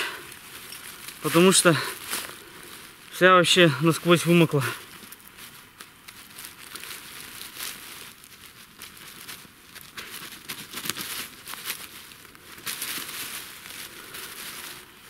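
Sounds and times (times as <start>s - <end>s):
hands rustling dry leaves: 0.0s - 15.0s.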